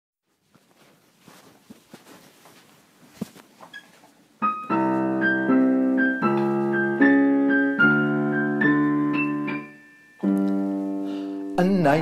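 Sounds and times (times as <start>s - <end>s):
digital piano chords and melody: 4.4s - 12.0s.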